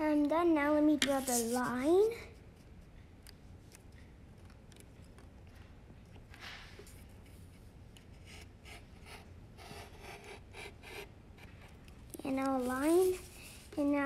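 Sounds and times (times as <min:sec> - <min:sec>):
pencil scratching on paper: 0:01.0 - 0:01.9, 0:08.1 - 0:11.6, 0:12.4 - 0:13.7.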